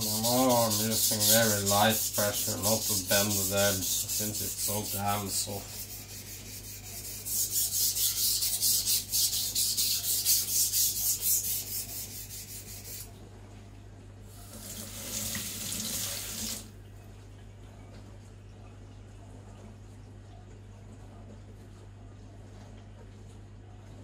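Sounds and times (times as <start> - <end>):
knife scraping on whetstone: 0.0 - 13.1.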